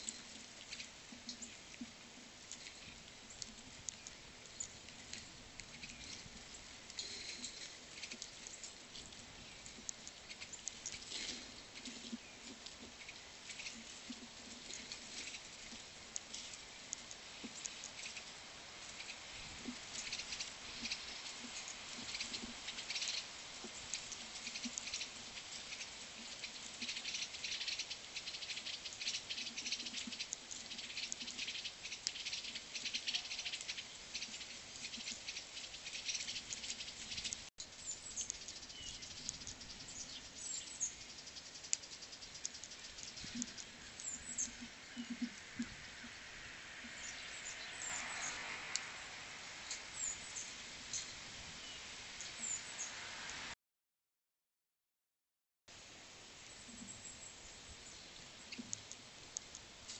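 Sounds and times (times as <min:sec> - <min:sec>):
light patter of tiny taps: 0:00.0 - 0:37.5, 0:41.3 - 0:45.8, 0:58.1 - 0:59.9.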